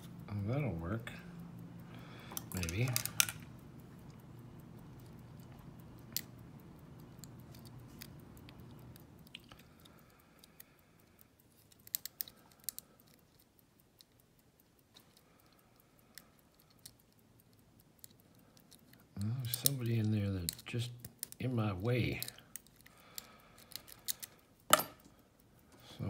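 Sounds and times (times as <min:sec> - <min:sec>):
low hum: 0:00.0 - 0:11.6
lock pick clicking and scraping: 0:11.6 - 0:14.2, 0:22.2 - 0:25.1.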